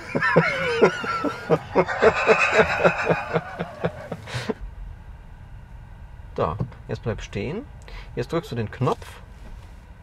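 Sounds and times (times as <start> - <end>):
steady high tone: 0.0 - 4.3
man laughing: 0.0 - 4.6.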